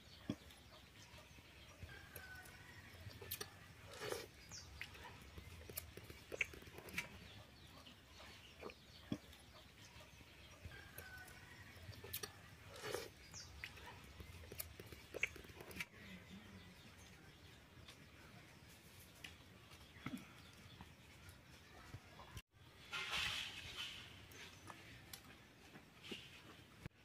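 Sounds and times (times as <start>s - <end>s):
people chewing: 0.0s - 17.2s
chickens clucking: 0.1s - 16.0s.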